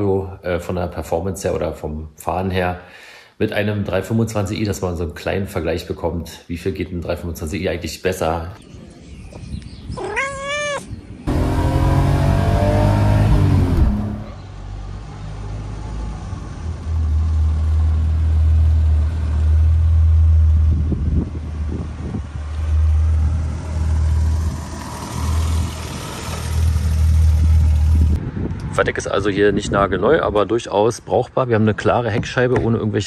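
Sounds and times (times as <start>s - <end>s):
car engine revving: 11.3s - 14.5s, 22.6s - 28.2s.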